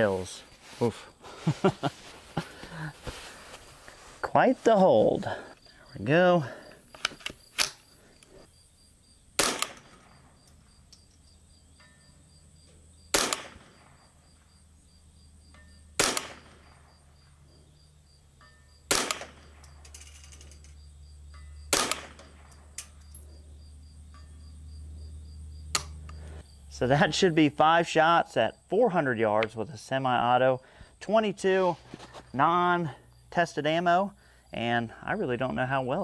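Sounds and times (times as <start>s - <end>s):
rifle shots: 9.4s - 10.3s, 13.1s - 14.0s, 16.0s - 16.9s, 18.9s - 19.7s, 21.7s - 22.6s.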